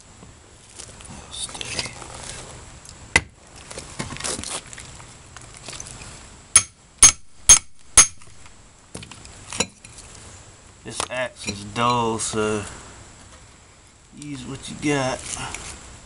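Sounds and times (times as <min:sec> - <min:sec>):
hammer striking hatchet head: 0:06.6 - 0:08.4.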